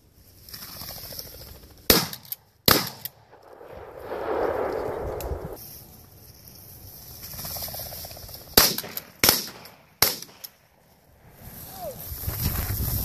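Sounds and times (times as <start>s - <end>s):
shotgun shots: 1.9s - 5.6s, 8.6s - 10.4s.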